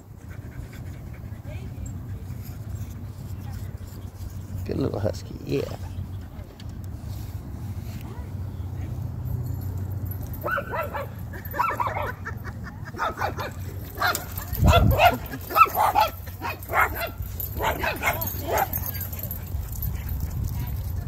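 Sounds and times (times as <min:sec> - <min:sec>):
husky barking and yipping: 0:10.3 - 0:21.0.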